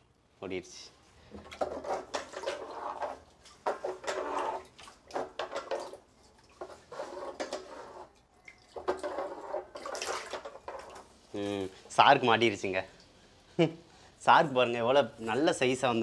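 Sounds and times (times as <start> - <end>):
water splashing in plastic drum: 1.3 - 11.2.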